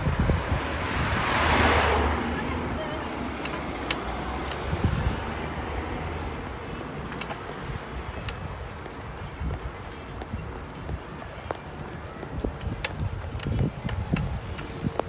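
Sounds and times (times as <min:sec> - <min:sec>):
wind rumbling on microphone: 0:00.0 - 0:15.0
light clicks: 0:03.4 - 0:04.7.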